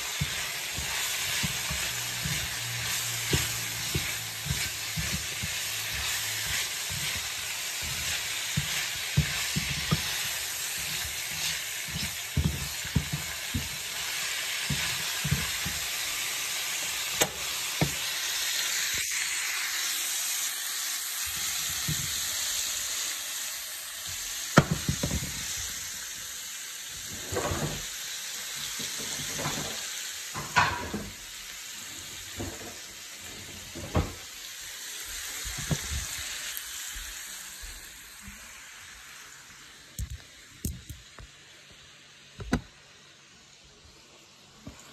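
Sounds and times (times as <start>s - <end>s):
spatula scraping a pan: 0.0s - 16.3s
meat and vegetables sizzling: 0.0s - 44.9s.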